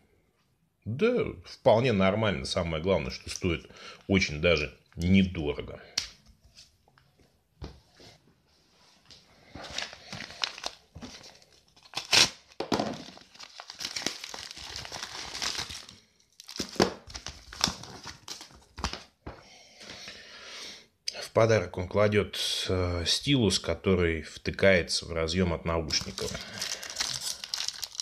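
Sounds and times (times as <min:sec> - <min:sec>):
packaging crinkling and tearing: 0:09.6 - 0:19.1, 0:25.9 - 0:28.0.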